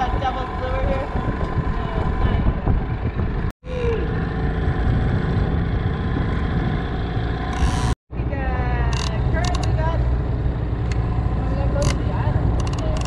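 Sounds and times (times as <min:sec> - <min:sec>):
outboard motor running: 0:00.0 - 0:03.5, 0:04.3 - 0:08.0.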